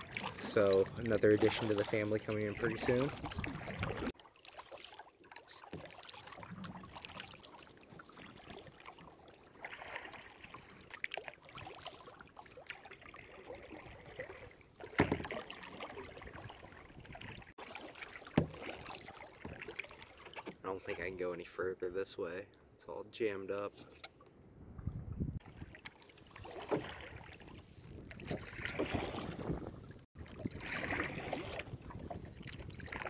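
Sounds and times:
water drips and trickles: 0.0s - 20.6s
paddle splashing in water: 0.0s - 21.3s, 25.4s - 33.0s.

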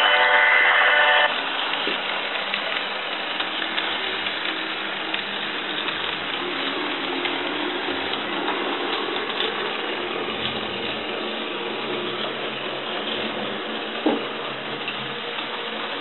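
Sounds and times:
model train motor whirring: 0.1s - 11.4s.

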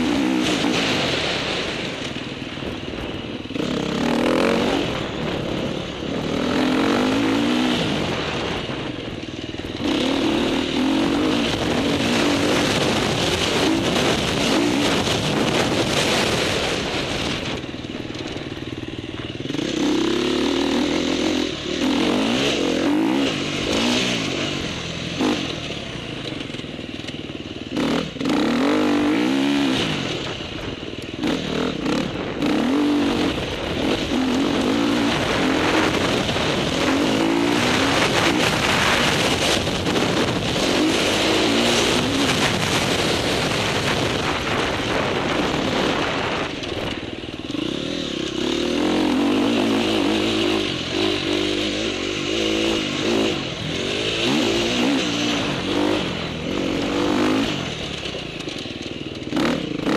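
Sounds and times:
dirt bike engine revving: 0.0s - 59.9s
steady rushing noise: 0.0s - 59.9s.

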